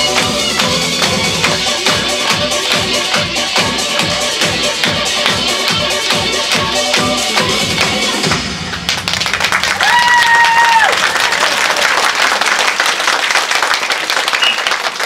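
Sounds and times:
dance music: 0.0 - 9.2
audience clapping: 4.7 - 15.0.

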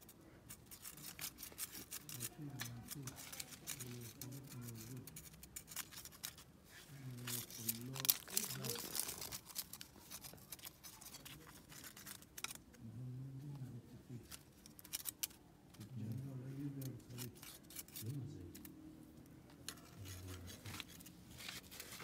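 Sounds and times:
small clicks and rustles: 0.0 - 12.8, 14.1 - 22.0
person murmuring softly: 1.8 - 5.4, 6.8 - 9.4, 10.9 - 14.4, 15.7 - 18.8, 19.7 - 20.9.

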